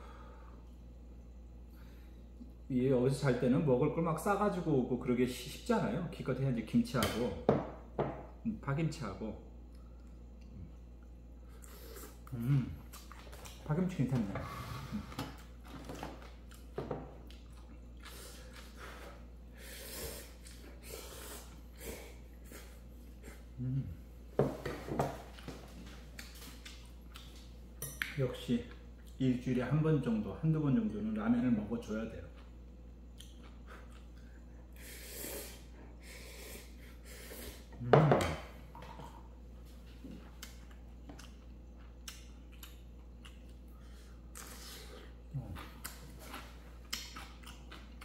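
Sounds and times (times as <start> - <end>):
chewing: 9.7 - 13.6, 32.3 - 34.6, 40.2 - 48.0.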